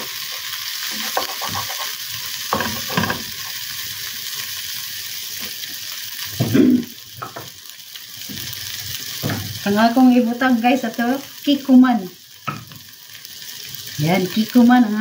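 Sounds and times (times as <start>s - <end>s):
vegetables sizzling in oil: 0.0s - 15.0s
wooden spatula scraping pan: 0.3s - 3.4s.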